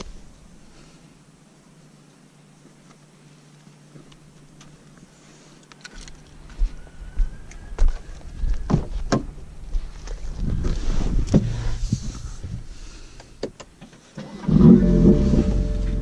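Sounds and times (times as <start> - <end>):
footsteps on dirt: 2.6 - 12.6
car engine starting loudly: 14.2 - 16.0.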